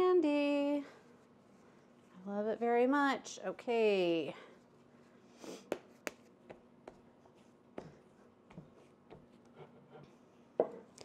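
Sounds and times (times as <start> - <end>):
hands pressing dough: 5.6 - 9.7.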